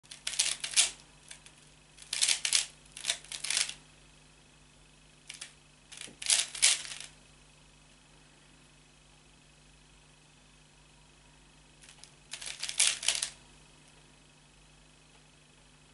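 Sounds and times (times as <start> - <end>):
plastic puzzle cube clicking: 0.2 - 1.4, 2.0 - 3.8, 5.3 - 7.1, 11.8 - 13.4.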